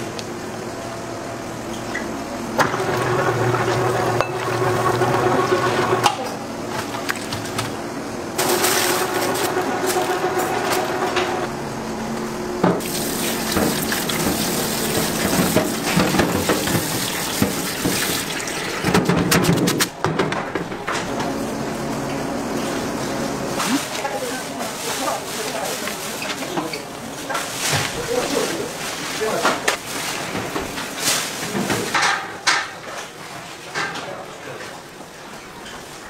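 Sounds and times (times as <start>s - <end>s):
low machine hum: 0.0s - 19.1s
rushing water: 12.8s - 18.8s.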